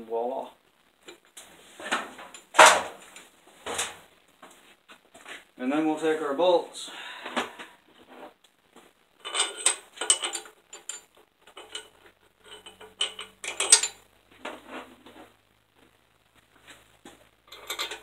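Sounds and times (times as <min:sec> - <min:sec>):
metal bolts clinking and rattling: 0:09.2 - 0:14.0, 0:17.5 - 0:18.0.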